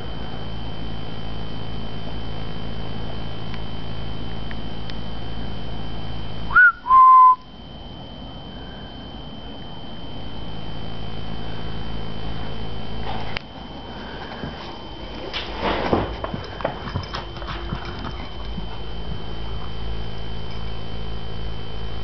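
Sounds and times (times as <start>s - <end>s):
person whistling: 6.5s - 7.5s.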